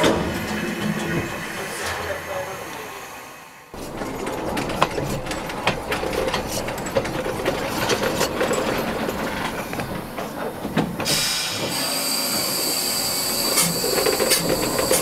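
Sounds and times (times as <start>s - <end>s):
steam locomotive rumble: 0.0s - 15.0s
high steady steam hiss: 0.4s - 4.0s, 11.0s - 15.0s
metallic clanks and knocks: 3.8s - 11.3s.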